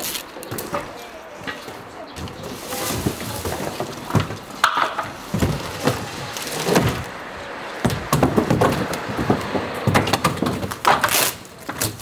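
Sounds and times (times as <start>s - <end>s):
cardboard rustling and scraping: 2.2s - 7.1s.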